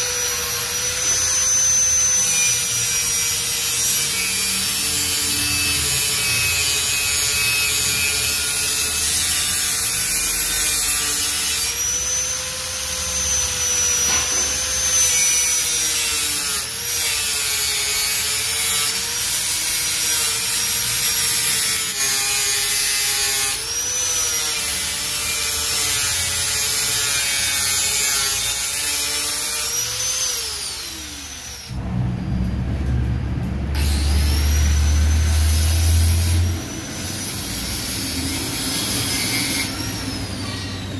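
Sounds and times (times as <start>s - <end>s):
angle grinder grinding metal: 0.0s - 31.8s, 33.8s - 40.9s
low hum: 31.7s - 37.0s.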